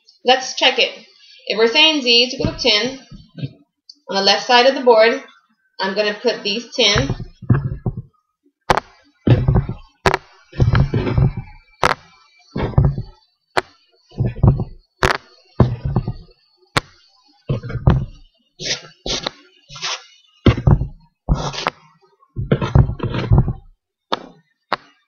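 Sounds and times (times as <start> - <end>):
counters knocking on cardboard: 2.4 - 3.5, 7.0 - 8.1, 8.7 - 19.3, 20.5 - 21.8, 22.4 - 24.9.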